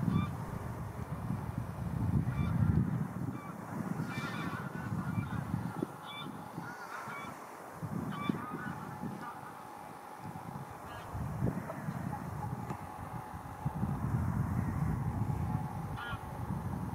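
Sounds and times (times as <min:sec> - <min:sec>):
geese honking: 0:03.4 - 0:13.6, 0:16.0 - 0:16.3.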